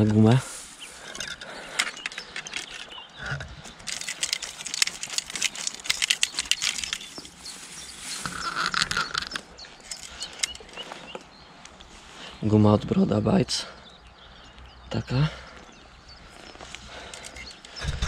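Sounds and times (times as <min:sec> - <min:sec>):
fish flapping in landing net: 0:03.9 - 0:07.4.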